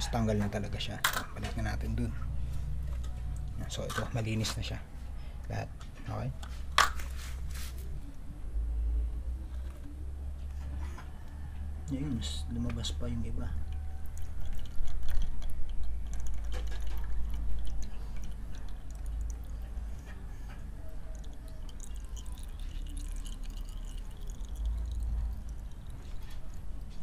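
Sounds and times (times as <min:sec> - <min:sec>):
oil trickling into plastic bucket: 0:13.7 - 0:19.7, 0:21.1 - 0:27.0.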